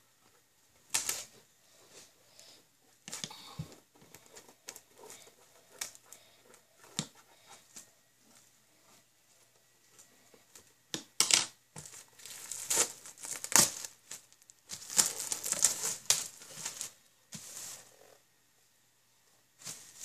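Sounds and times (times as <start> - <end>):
plastic wrap crinkling: 11.8 - 17.9.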